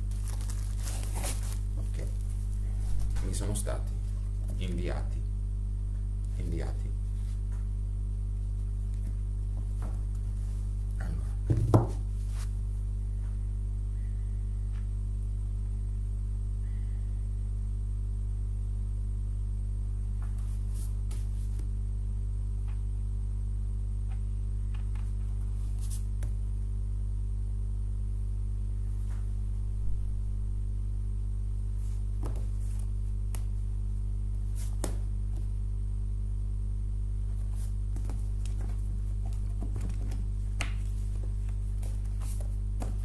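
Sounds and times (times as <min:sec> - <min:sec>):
paper rustling: 0:00.0 - 0:04.6, 0:37.3 - 0:43.0
electrical mains hum: 0:00.0 - 0:43.0
comic books tapping down: 0:11.4 - 0:12.0, 0:32.2 - 0:32.5, 0:34.7 - 0:35.0, 0:38.0 - 0:43.0.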